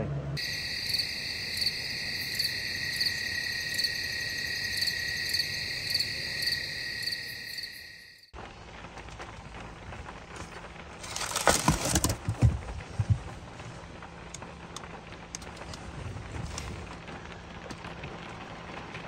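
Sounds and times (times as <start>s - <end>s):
night insects trilling: 0.4s - 8.3s
pulsing insect call: 0.4s - 8.3s.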